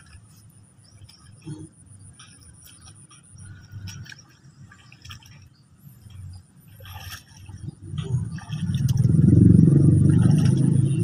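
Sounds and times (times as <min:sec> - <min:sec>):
low wind rumble: 0:03.4 - 0:11.0.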